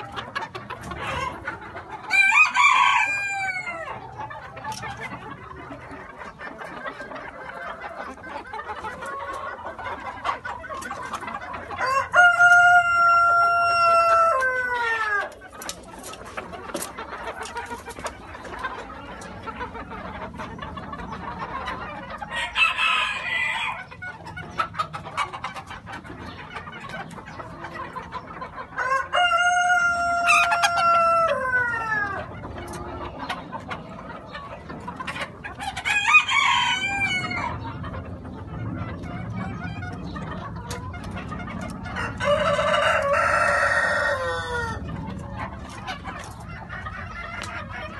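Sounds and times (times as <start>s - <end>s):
chickens clucking: 0.0s - 47.9s
rooster crowing: 2.1s - 3.9s, 11.8s - 15.2s, 35.9s - 37.5s, 42.0s - 44.8s.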